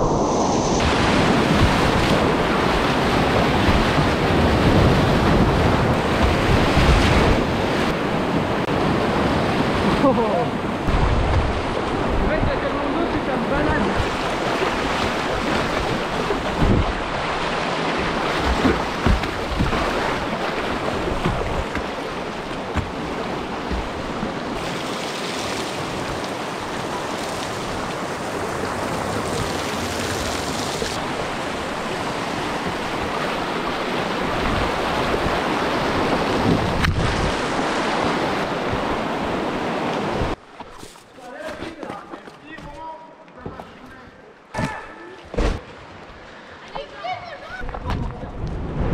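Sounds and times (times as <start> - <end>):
wind buffeting microphone: 10.6 - 24.7, 27.7 - 40.4
low thumps: 16.3 - 17.2.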